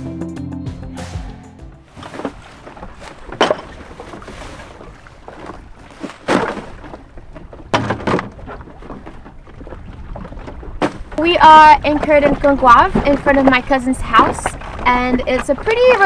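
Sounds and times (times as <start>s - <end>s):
bags dropping into dinghy thumps: 1.8s - 8.7s.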